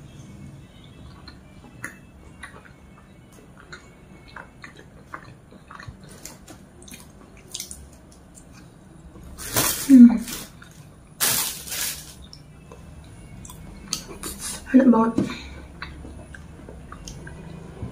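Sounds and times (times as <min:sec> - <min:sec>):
person chewing food: 0:00.9 - 0:09.4, 0:10.4 - 0:11.2, 0:12.2 - 0:14.7, 0:15.4 - 0:17.8
lip smacks and clicks: 0:03.6 - 0:08.7, 0:13.4 - 0:14.4.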